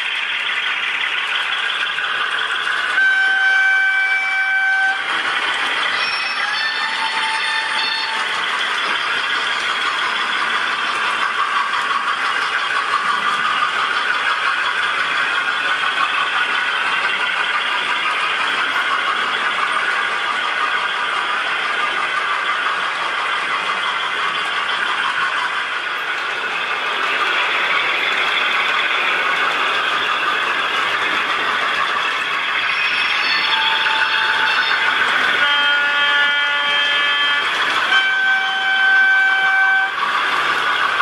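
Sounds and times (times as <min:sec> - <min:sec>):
model train rattling on track: 0:00.0 - 0:41.0
train horn note: 0:02.8 - 0:05.1, 0:06.0 - 0:08.3, 0:33.2 - 0:40.1.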